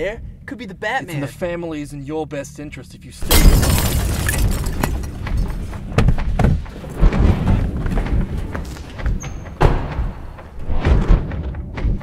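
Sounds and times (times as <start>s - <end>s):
low rumbling background score: 0.0s - 3.2s, 4.8s - 12.0s
heavy thuds: 3.6s - 12.0s.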